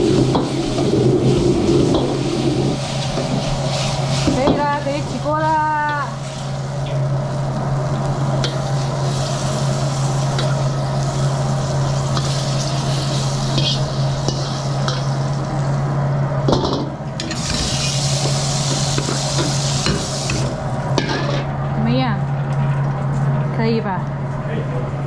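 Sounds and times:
water hissing in hot wok: 0.0 - 15.8, 17.2 - 21.4
wok range humming: 0.0 - 25.0
metal spatula scraping a wok: 12.2 - 15.0, 21.0 - 21.5.

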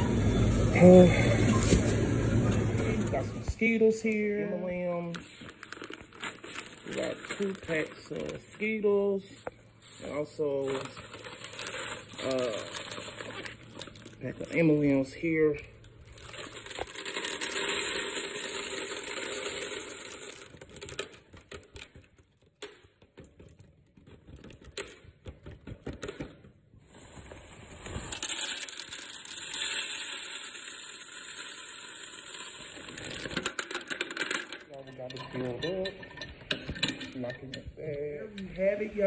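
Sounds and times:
candies pouring into plastic canister: 3.6 - 22.8, 26.9 - 35.9
candy pieces clicking: 16.2 - 26.3, 28.1 - 34.7.

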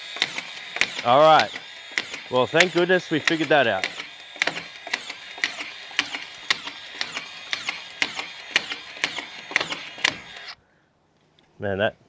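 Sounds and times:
screw gun running: 0.0 - 10.6
screws clicking as driven: 0.0 - 10.6.

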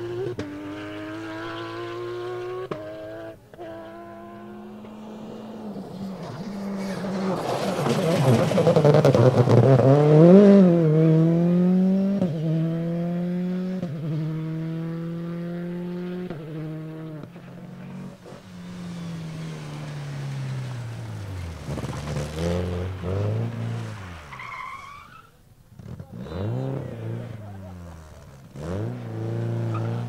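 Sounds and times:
rally car accelerating hard: 0.0 - 30.0
second car engine: 0.0 - 30.0
tyre squeal: 5.4 - 9.5, 17.4 - 27.4.

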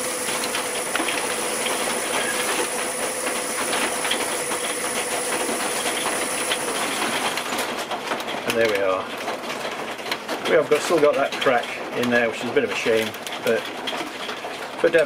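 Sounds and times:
lathe motor whine: 0.0 - 7.5.

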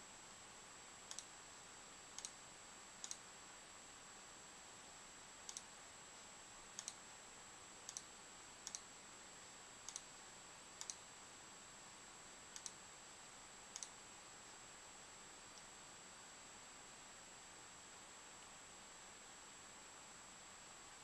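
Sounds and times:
low hiss: 0.0 - 21.0
computer mouse clicks: 1.1 - 1.3, 2.2 - 2.4, 3.0 - 3.2, 5.5 - 5.7, 6.8 - 7.0, 7.8 - 8.9, 9.8 - 10.1, 10.8 - 11.0, 12.5 - 12.8, 13.7 - 14.0.

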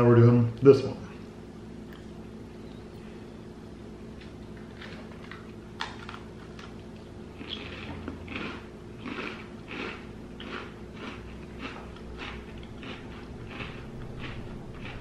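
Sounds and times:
cookie crunching while chewed: 4.2 - 15.0.

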